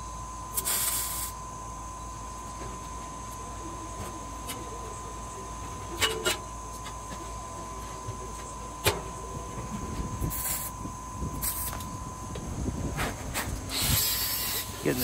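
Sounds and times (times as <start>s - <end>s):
shop hum with thin tone: 0.0s - 15.0s
short hiss: 0.6s - 1.3s, 13.7s - 14.7s.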